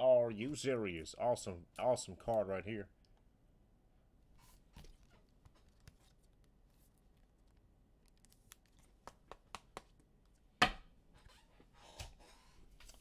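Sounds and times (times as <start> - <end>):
cards clicking and crinkling: 4.8 - 10.0.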